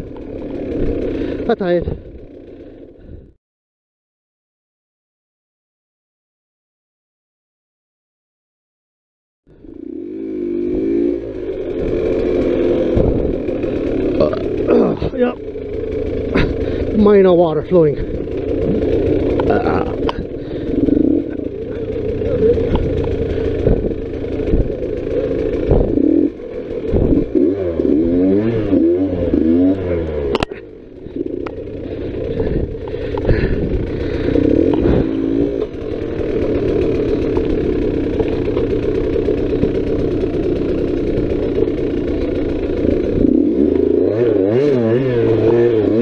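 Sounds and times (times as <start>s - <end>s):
dirt bike engine revving: 0.0s - 3.2s, 9.5s - 46.0s
bike knocks and clatter: 25.6s - 26.1s.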